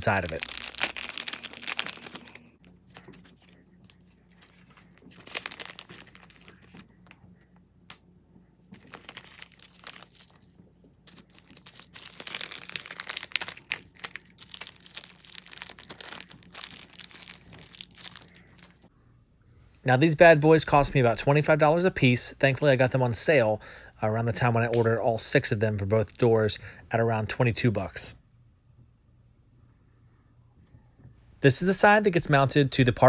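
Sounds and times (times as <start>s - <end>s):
plastic bag crinkling: 0.0s - 6.9s, 8.7s - 18.9s.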